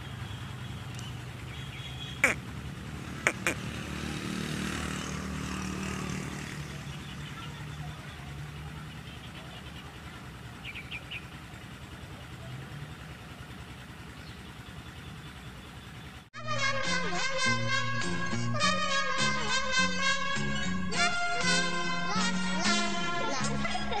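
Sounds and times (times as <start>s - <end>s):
chirps: 0.0s - 2.4s, 8.8s - 12.6s, 14.1s - 16.3s
motor engine running: 0.0s - 18.6s.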